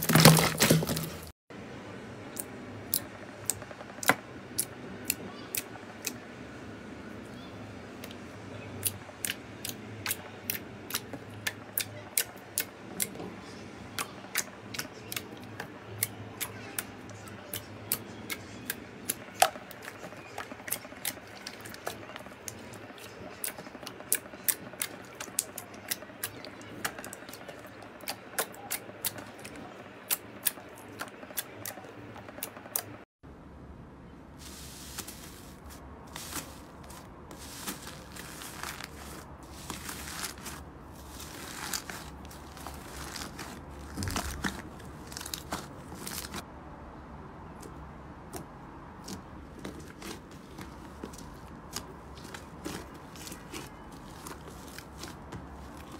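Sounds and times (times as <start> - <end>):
crunchy foam slime crackling: 34.4 - 46.4, 49.0 - 55.9.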